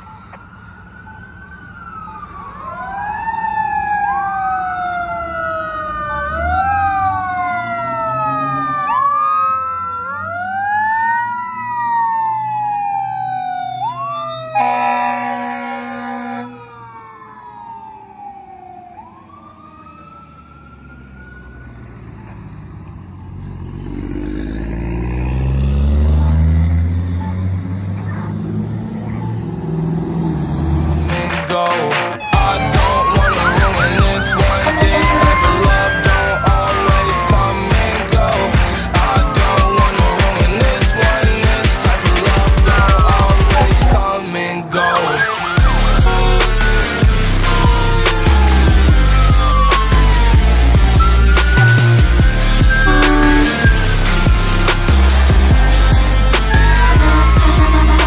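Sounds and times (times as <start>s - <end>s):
wailing siren: 0.0s - 58.0s
air horn blast: 14.6s - 16.6s, 52.7s - 54.6s, 56.6s - 58.0s
heavy vehicle engine rumble: 45.6s - 58.0s.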